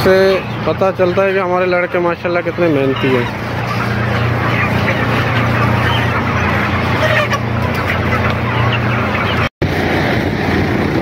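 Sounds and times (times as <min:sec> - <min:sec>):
chickens clucking and peeping: 0:00.0 - 0:09.5
wind noise on microphone: 0:09.6 - 0:11.0.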